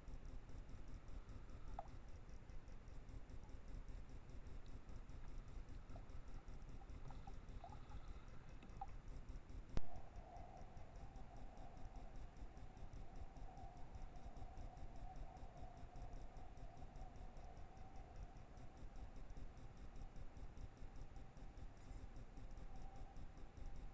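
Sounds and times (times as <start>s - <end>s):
faint steady whine: 0.0s - 23.9s
faint low rumbling: 3.2s - 19.7s.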